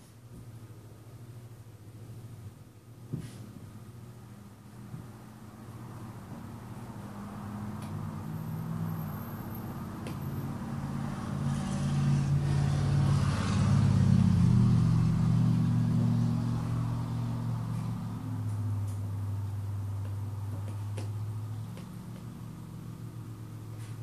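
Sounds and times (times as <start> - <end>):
vehicle engine rumbling past: 5.8 - 24.0.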